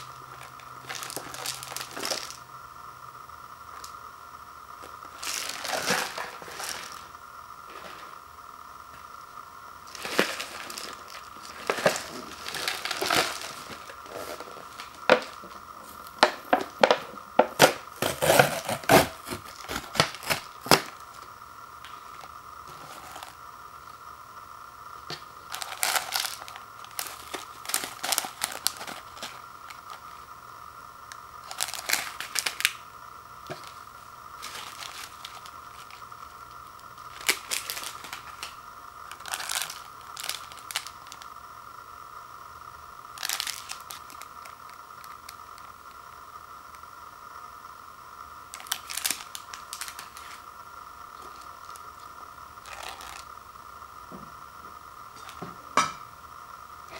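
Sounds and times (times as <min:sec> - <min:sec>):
plastic packets crinkling: 0:00.0 - 0:02.4, 0:04.8 - 0:08.2, 0:09.8 - 0:21.3, 0:21.9 - 0:23.4, 0:25.4 - 0:30.2, 0:31.4 - 0:32.8, 0:33.5 - 0:41.3, 0:43.1 - 0:45.7, 0:48.5 - 0:50.4, 0:51.2 - 0:53.3
faint steady hum: 0:00.0 - 0:56.9.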